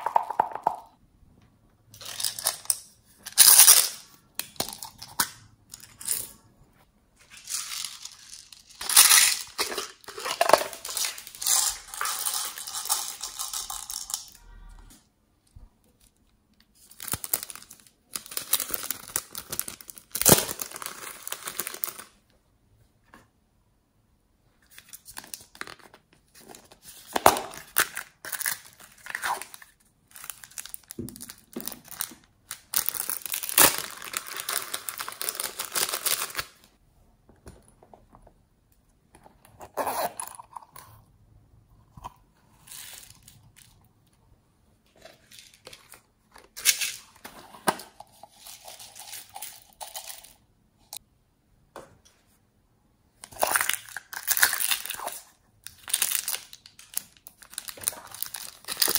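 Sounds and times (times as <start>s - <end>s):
plastic bag crinkling: 27.8s - 36.7s, 55.8s - 58.9s.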